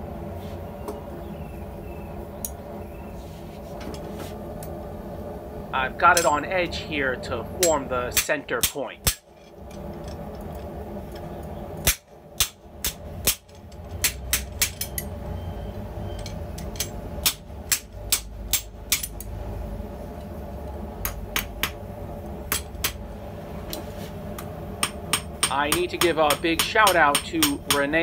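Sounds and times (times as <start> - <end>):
steady low hum: 0.0 - 28.0
hammer striking steel: 6.2 - 6.4, 7.6 - 9.3, 11.8 - 15.0, 24.8 - 28.0.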